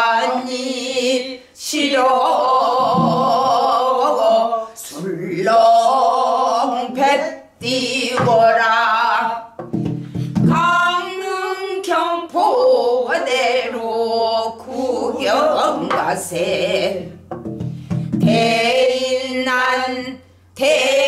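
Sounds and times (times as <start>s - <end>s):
woman singing long wavering notes: 0.0s - 9.5s, 10.5s - 17.2s
stick striking a barrel drum: 2.8s - 3.7s, 8.1s - 8.7s, 9.6s - 10.7s, 15.8s - 18.6s.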